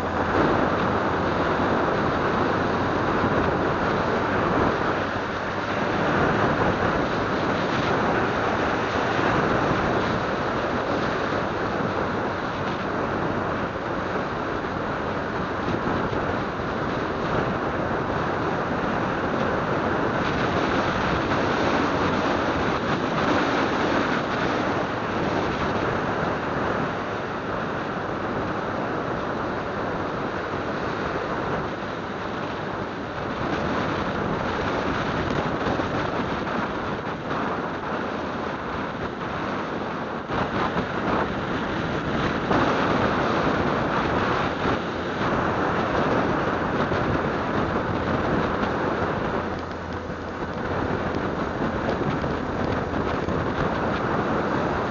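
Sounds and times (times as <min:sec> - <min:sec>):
motorcycle engine and tyres: 0:00.0 - 0:54.9
wind rushing over microphone: 0:00.0 - 0:54.9.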